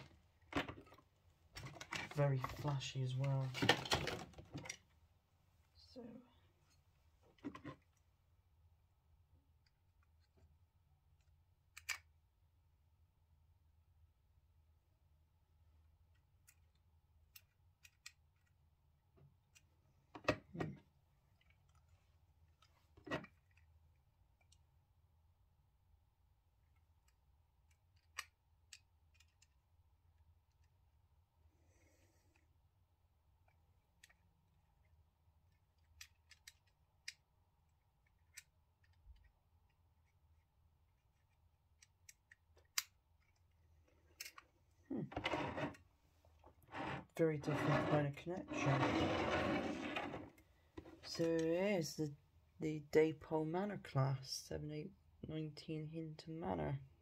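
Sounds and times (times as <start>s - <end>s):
person speaking: 2.0s - 4.1s, 5.7s - 6.5s, 44.9s - 45.6s, 46.7s - 50.2s, 50.9s - 57.0s
plastic parts clicking and snapping: 11.2s - 12.1s, 16.1s - 18.6s, 26.7s - 29.7s, 35.5s - 37.3s, 41.0s - 44.5s.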